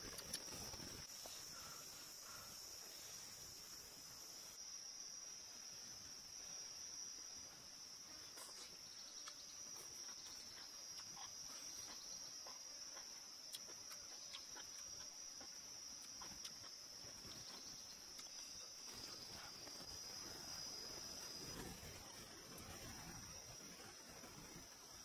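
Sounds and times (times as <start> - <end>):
insects chirring: 0.0 - 25.0
person chewing noodles: 8.4 - 18.5.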